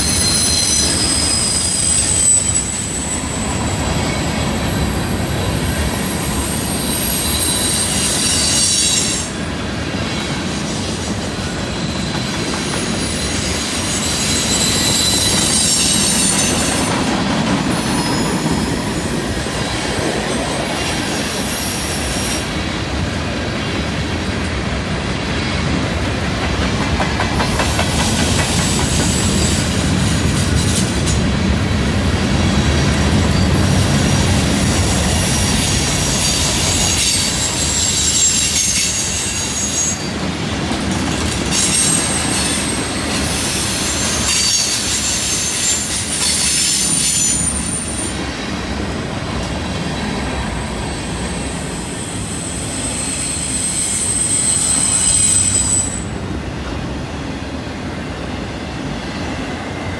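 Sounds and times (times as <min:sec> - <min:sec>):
high-pitched wheel squeal: 0:00.0 - 0:04.4, 0:06.0 - 0:17.0, 0:17.8 - 0:19.1, 0:21.4 - 0:27.8, 0:35.6 - 0:40.2, 0:43.4 - 0:56.2
wheel and rail rumble: 0:00.0 - 0:59.9
wheels clacking over rail joints: 0:26.0 - 0:31.4.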